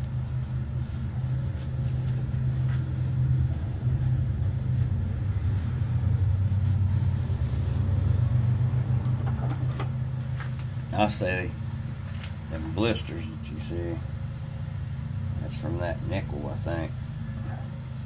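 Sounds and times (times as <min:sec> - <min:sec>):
low droning machine hum: 0:00.0 - 0:18.0.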